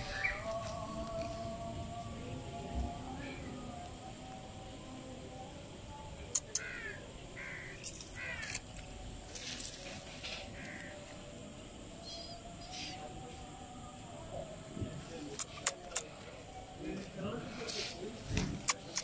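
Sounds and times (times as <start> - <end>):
sharp clicks: 6.3 - 6.7, 15.4 - 16.1, 18.6 - 19.0
crows cawing: 6.4 - 8.6, 10.3 - 11.1.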